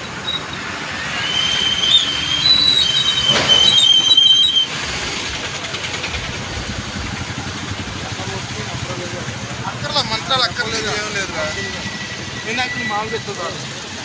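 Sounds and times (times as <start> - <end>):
high two-pitched squeal: 0.0 - 4.8, 10.9 - 13.6.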